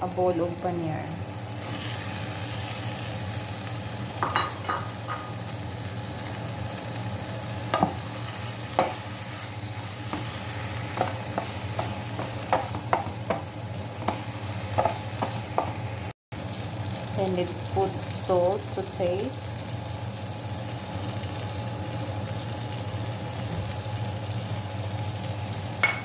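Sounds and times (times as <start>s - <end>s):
food sizzling in a frying pan: 0.0s - 26.0s
spatula scraping a pan: 8.7s - 15.9s.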